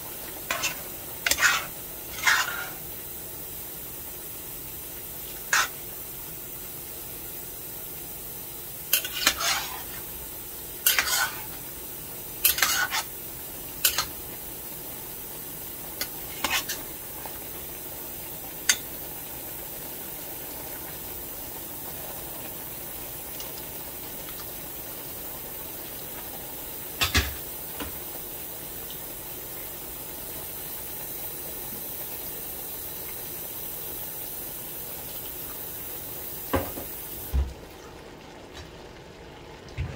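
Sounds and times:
food cooking hiss: 0.0 - 39.7
metal spoon scraping cooking pot: 0.5 - 2.8, 5.5 - 5.8, 9.0 - 9.9, 10.9 - 11.5, 12.4 - 13.1.

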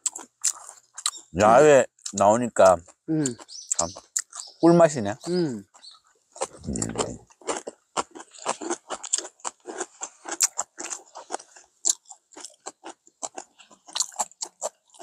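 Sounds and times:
chewing: 0.0 - 4.6, 5.2 - 15.0
slurping noodles: 6.4 - 7.2.

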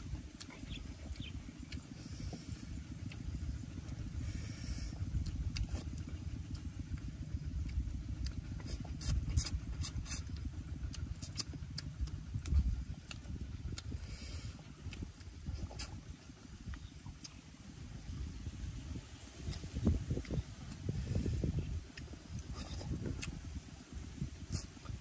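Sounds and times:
man chewing and lip-smacking: 0.0 - 25.0
wind buffeting microphone: 0.0 - 25.0.

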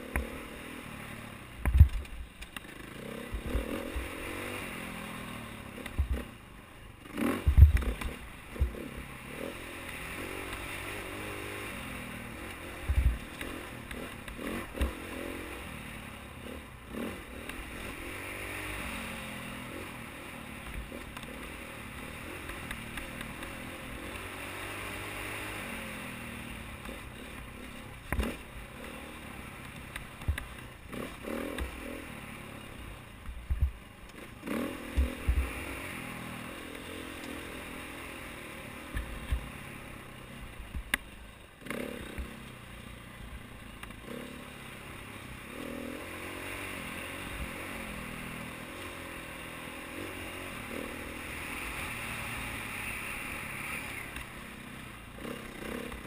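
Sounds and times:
motorcycle engine revving: 0.0 - 56.0
bike knocking and clattering over bumps: 1.6 - 3.6, 5.8 - 6.3, 7.2 - 8.8, 29.6 - 30.7.

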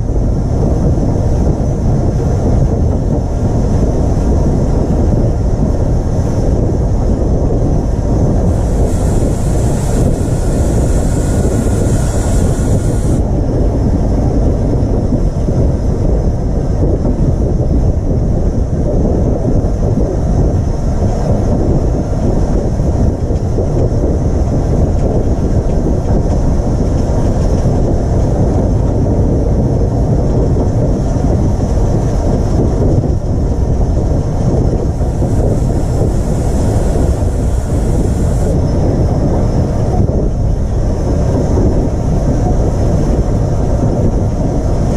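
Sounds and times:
steam locomotive rumbling on rails: 0.0 - 44.9
steam hiss: 8.4 - 13.2, 34.8 - 38.6.

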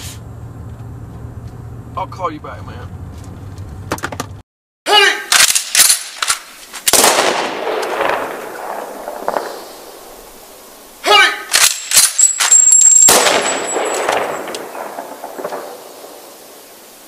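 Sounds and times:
gunshots: 5.3 - 17.0.

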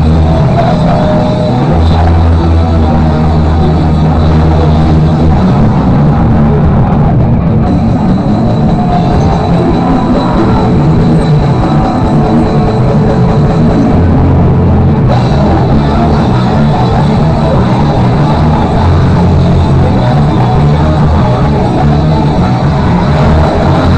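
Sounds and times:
drum kit: 0.0 - 23.9
electric guitar: 0.0 - 23.9
live rock band: 0.0 - 23.9.

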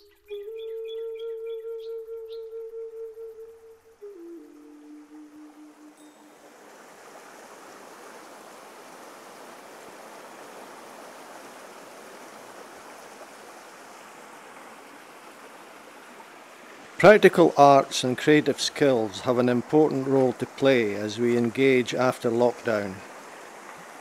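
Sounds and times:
stream flowing over stones: 5.9 - 24.0.

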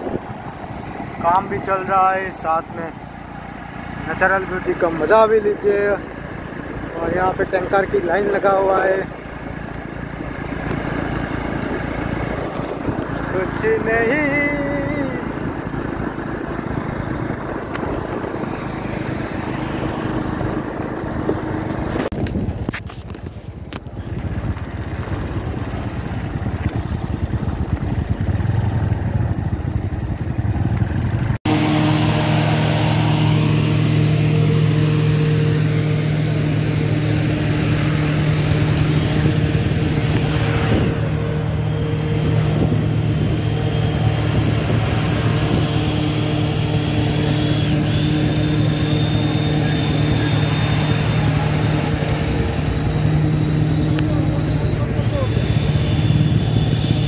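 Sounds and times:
wind noise: 0.0 - 1.8, 10.0 - 13.6, 14.6 - 28.1, 37.4 - 57.0
motorcycle engine running: 0.0 - 57.0.

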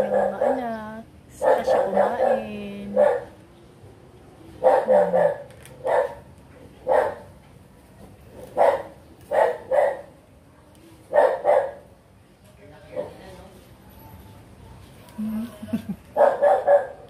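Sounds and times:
dog barking: 0.0 - 0.8, 1.4 - 3.4, 4.6 - 7.3, 8.4 - 10.1, 11.1 - 11.9, 16.2 - 17.0.

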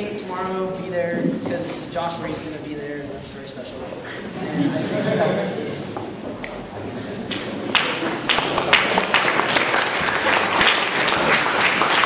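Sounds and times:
audience applauding: 7.3 - 12.0.

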